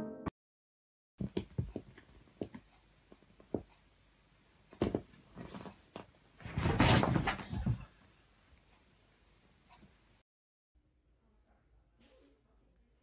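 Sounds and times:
cat scuffling and thumping: 0:04.8 - 0:08.0.

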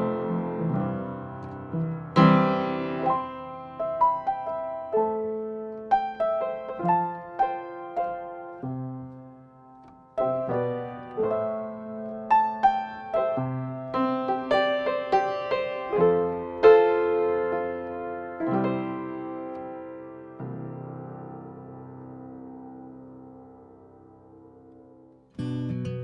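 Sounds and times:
upright piano chords: 0:00.0 - 0:26.0.

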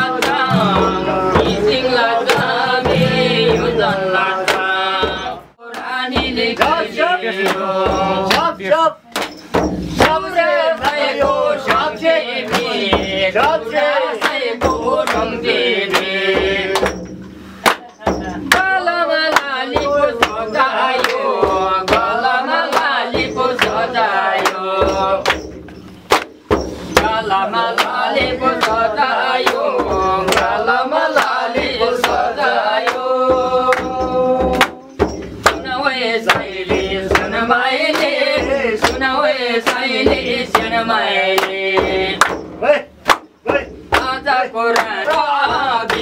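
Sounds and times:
sharp drum beats: 0:00.0 - 0:46.0
voices chanting together: 0:00.0 - 0:46.0.

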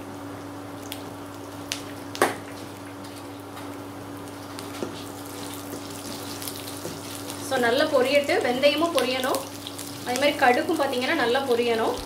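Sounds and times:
seeds and shallots sizzling in oil: 0:04.3 - 0:12.0.

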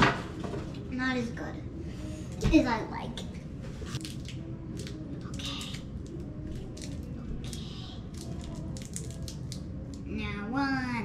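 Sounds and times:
packaging clicks and crinkles: 0:04.0 - 0:10.0.

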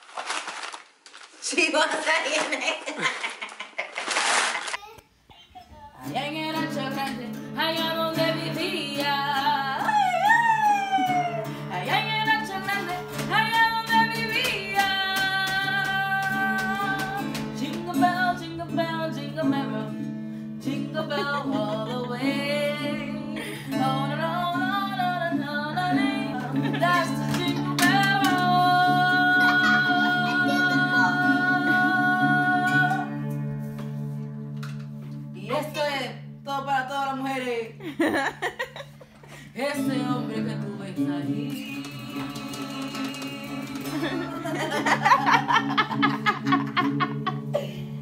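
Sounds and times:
woman singing: 0:06.0 - 0:33.3, 0:39.5 - 0:45.5
acoustic guitar strumming: 0:06.1 - 0:10.3, 0:11.2 - 0:36.3, 0:39.8 - 0:47.5.

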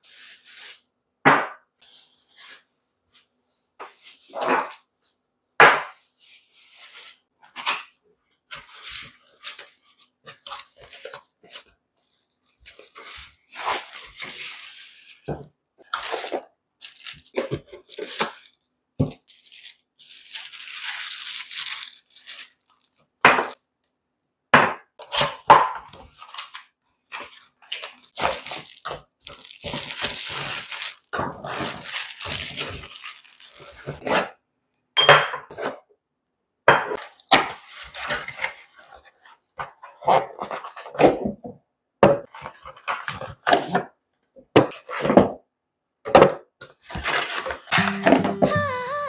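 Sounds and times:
plastic wrapping crinkling: 0:15.8 - 0:23.1, 0:26.1 - 0:34.2.

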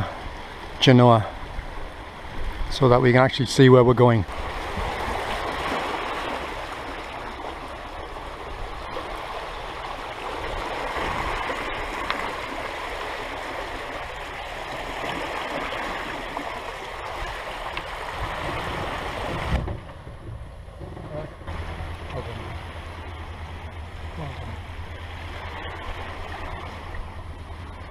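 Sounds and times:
water rushing along a hull: 0:00.0 - 0:27.9
thump: 0:19.3 - 0:21.1.

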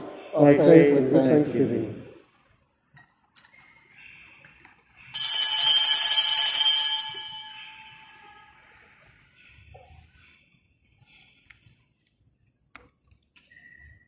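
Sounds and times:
small bell ringing: 0:05.1 - 0:08.5.

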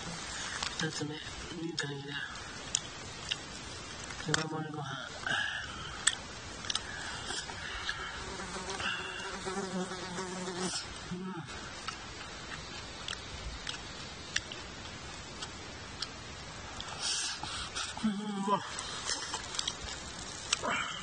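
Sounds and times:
flying insect buzzing: 0:07.7 - 0:11.0.

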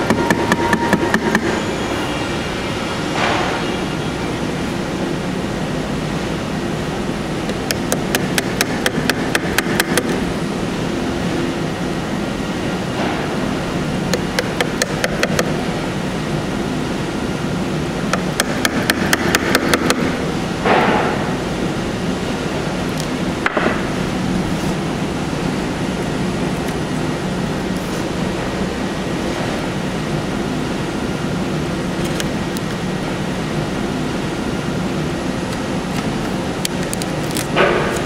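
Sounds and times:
mallet tapping wood chisel: 0:14.1 - 0:15.5.

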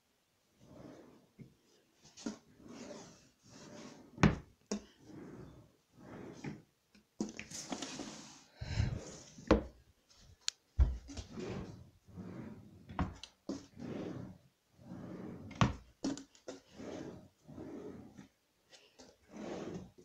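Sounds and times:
drawers opening and shutting: 0:02.0 - 0:09.8, 0:10.8 - 0:18.3, 0:19.0 - 0:20.0
scraping and rustling: 0:07.3 - 0:09.5.

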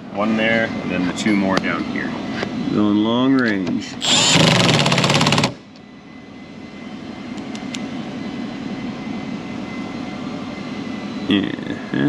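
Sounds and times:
impact driver hammering: 0:04.0 - 0:05.6.

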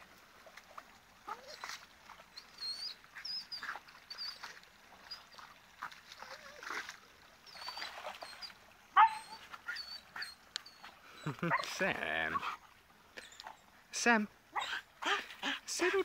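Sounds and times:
dog whimpering: 0:07.5 - 0:12.5
dog yelping: 0:07.5 - 0:12.6, 0:14.6 - 0:15.6.

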